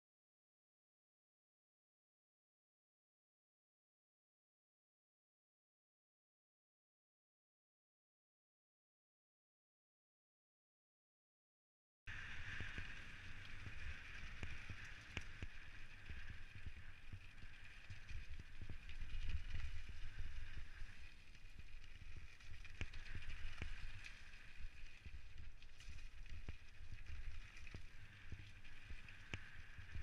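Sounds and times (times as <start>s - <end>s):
bike rattling over stones: 12.1s - 30.0s
bike tyres hissing on gravel: 12.1s - 30.0s
wind rumble on microphone: 12.1s - 30.0s.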